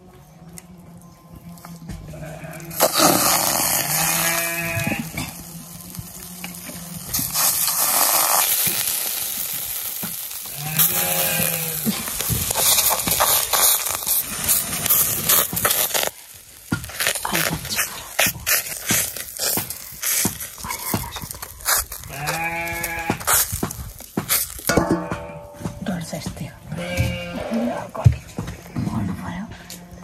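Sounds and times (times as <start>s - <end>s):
cow mooing: 2.1s - 5.5s
batter sizzling in hot wok: 2.6s - 25.1s.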